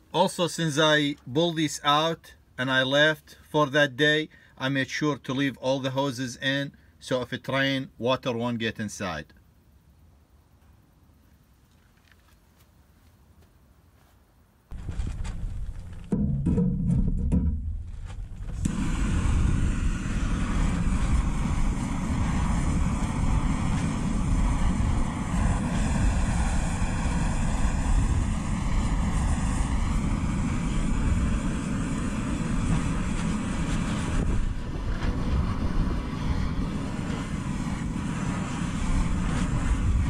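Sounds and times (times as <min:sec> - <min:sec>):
steady low rumbling noise: 0:14.7 - 0:40.0
slow swooping sweep: 0:18.4 - 0:40.0.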